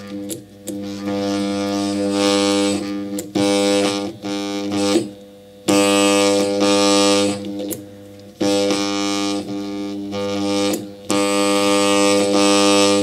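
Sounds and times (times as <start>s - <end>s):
electric motor buzzing loudly: 0.0s - 13.0s.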